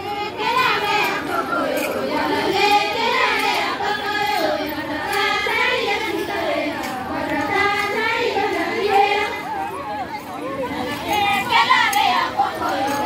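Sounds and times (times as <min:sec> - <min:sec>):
women singing folk song: 0:00.0 - 0:09.7, 0:10.6 - 0:13.0.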